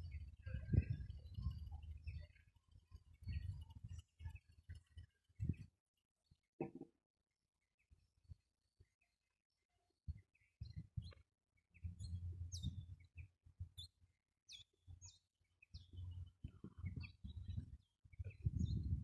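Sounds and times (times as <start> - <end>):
wind rumbling on microphone: 0.0 - 5.7, 10.1 - 11.2, 11.8 - 13.9, 14.8 - 19.0
birds chirping: 0.0 - 6.8, 10.0 - 19.0.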